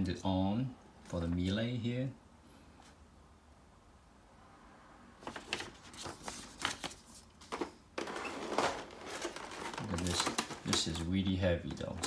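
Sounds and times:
paper and plastic rustling: 5.2 - 12.0.

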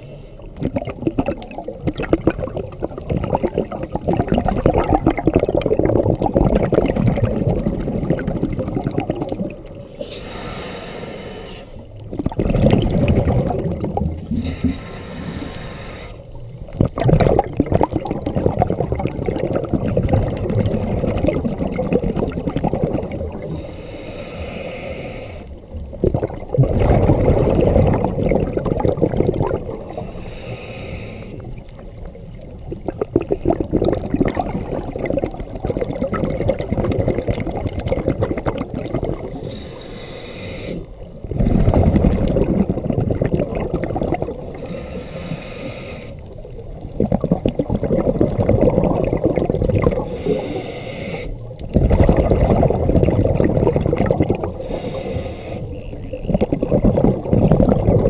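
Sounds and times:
regulator inhale hiss: 0.0 - 0.5, 9.8 - 12.0, 14.2 - 16.8, 23.4 - 25.6, 29.8 - 31.6, 39.4 - 41.0, 44.4 - 46.4, 50.0 - 51.5, 54.6 - 55.8
loud exhaled bubbling underwater: 0.6 - 9.8, 12.1 - 14.4, 16.8 - 23.5, 25.9 - 30.0, 32.6 - 39.4, 41.2 - 44.6, 46.7 - 50.4, 51.4 - 55.0, 55.7 - 58.0.

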